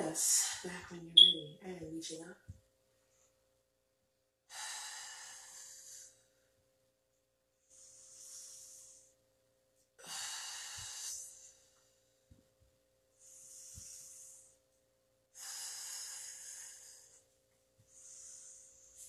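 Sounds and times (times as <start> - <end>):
woman breathing deeply: 4.5 - 6.4, 7.6 - 9.2, 10.0 - 12.0, 13.1 - 14.6, 15.3 - 19.0.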